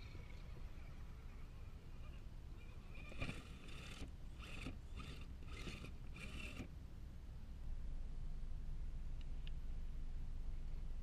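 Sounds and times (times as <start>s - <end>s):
electric motor and gears whining: 2.0s - 6.7s.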